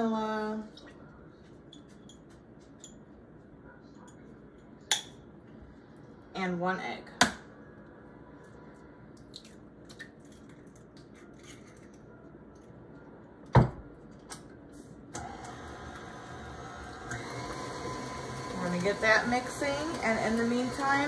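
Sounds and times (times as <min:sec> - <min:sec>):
stand mixer humming: 0:15.2 - 0:21.0.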